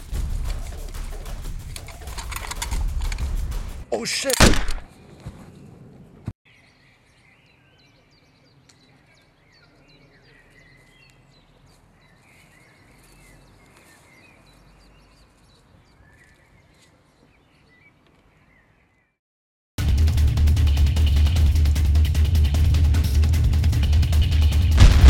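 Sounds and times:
small birds chirping: 6.5s - 19.2s.

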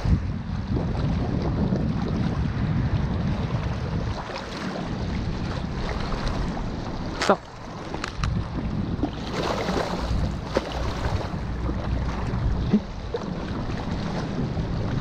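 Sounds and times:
wind rumbling on microphone: 0.0s - 15.0s
small waves lapping on rocks: 4.0s - 15.0s.

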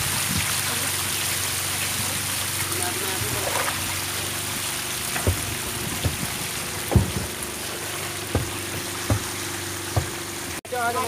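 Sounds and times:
fish flapping and splashing: 3.2s - 10.6s
dull thumps: 5.0s - 10.6s.

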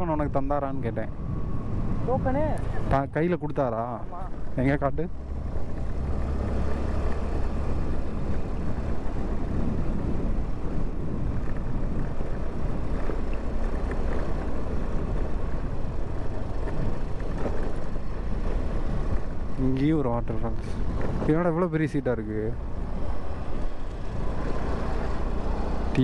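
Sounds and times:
road noise: 0.0s - 26.0s
wind buffeting microphone: 4.0s - 21.7s.

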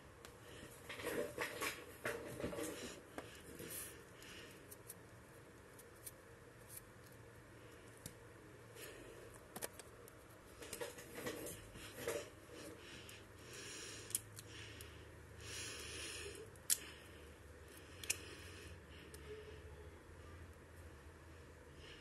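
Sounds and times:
plastic toys rustling: 9.5s - 12.7s
plastic parts clicking: 18.0s - 18.2s.

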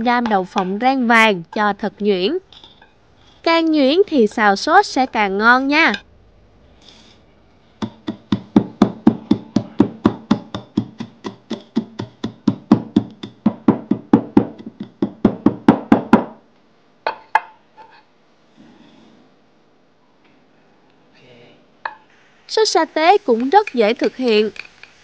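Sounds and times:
wooden pestle pounding in mortar: 0.0s - 1.7s, 7.8s - 16.4s
sharp knocks: 7.8s - 16.4s.

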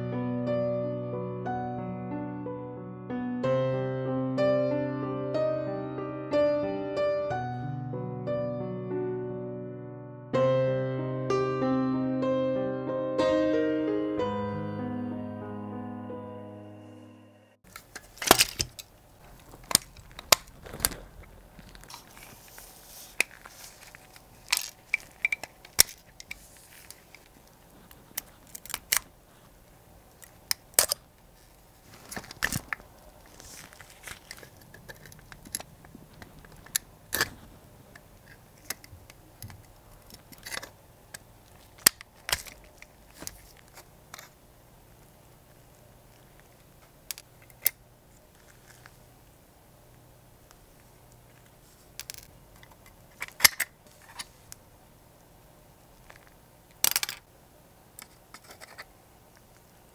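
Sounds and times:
faint room hum: 13.5s - 59.9s.

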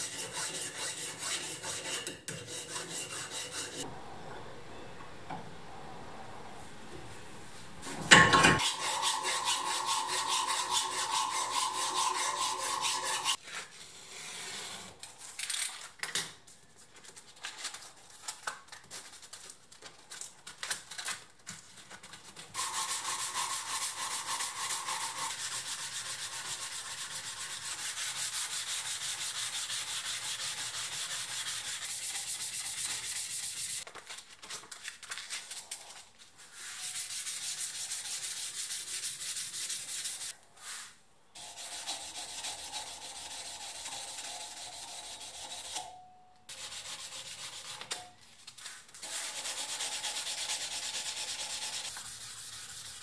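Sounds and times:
sanding block rubbing metal: 0.0s - 3.9s, 8.6s - 13.4s, 22.6s - 33.8s, 36.7s - 40.3s, 41.4s - 45.8s, 46.5s - 48.0s, 49.0s - 53.0s.

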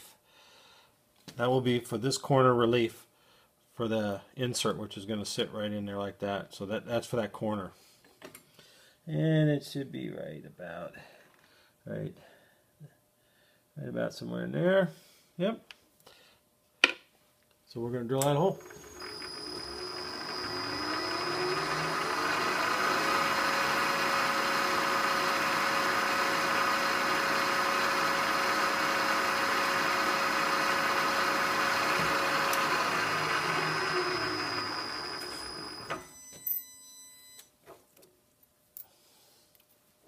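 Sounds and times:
drill boring into steel: 18.5s - 36.1s
milling machine spindle whine: 18.5s - 36.1s.

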